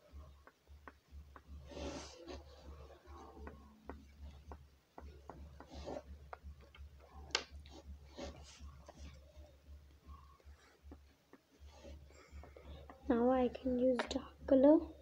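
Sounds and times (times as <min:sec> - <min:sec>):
low steady hum: 0:00.0 - 0:15.0
oil pastel scratching on paper: 0:01.6 - 0:03.6, 0:05.5 - 0:06.4, 0:07.6 - 0:09.3, 0:11.6 - 0:12.1.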